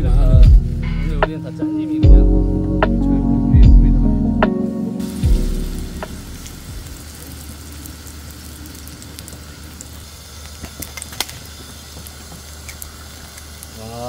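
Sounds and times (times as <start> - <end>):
batter sizzling on griddle: 5.0 - 14.0.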